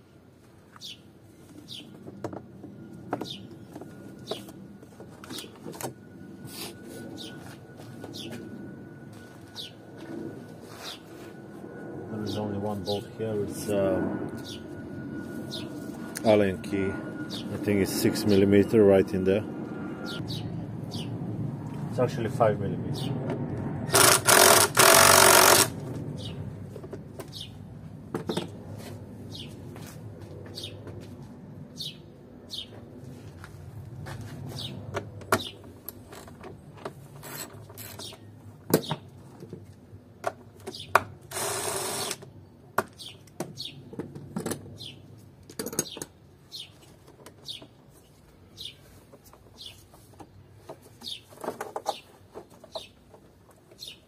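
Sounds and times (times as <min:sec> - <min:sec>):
bird chirping: 0:14.4 - 0:14.7, 0:20.0 - 0:21.1, 0:53.8 - 0:54.0
impact driver running: 0:23.9 - 0:25.8, 0:41.3 - 0:42.2.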